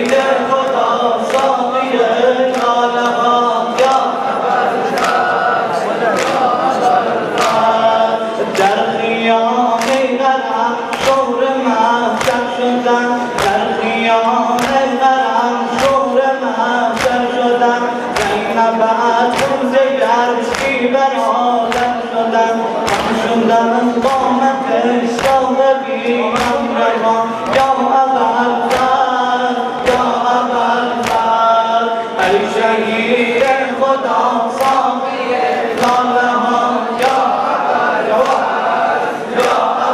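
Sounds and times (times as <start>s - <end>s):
hands slapping chests: 0.0s - 1.6s, 2.4s - 4.1s, 4.9s - 5.4s, 6.1s - 6.6s, 7.3s - 7.8s, 9.8s - 10.1s, 10.9s - 11.3s, 12.1s - 12.5s, 14.6s - 14.9s, 16.9s - 17.4s, 18.1s - 18.4s, 19.2s - 22.0s, 22.8s - 23.3s, 25.2s - 26.8s, 27.4s - 27.9s, 28.6s - 29.0s, 31.0s - 31.4s, 34.6s - 34.9s, 35.7s - 36.2s, 36.9s - 37.5s, 38.1s - 38.6s, 39.3s - 39.9s
crowd of men chanting: 0.0s - 39.9s.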